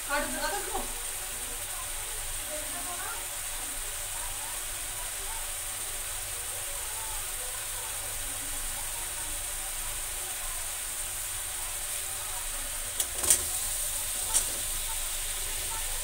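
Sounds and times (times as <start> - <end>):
food sizzling in a pan: 0.0 - 16.0
potatoes clattering into pan: 12.9 - 15.7.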